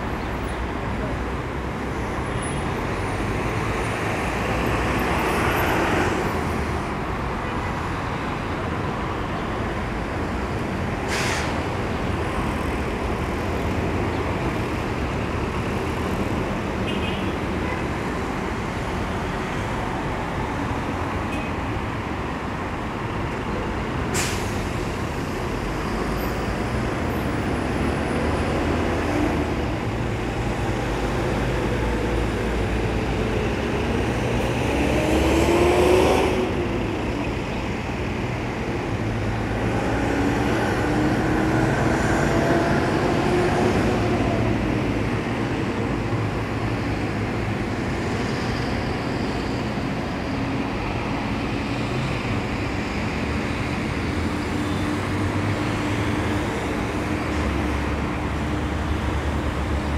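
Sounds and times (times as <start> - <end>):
city street traffic: 0.0 - 59.9
bus air brakes hissing: 11.0 - 11.8, 24.1 - 25.1.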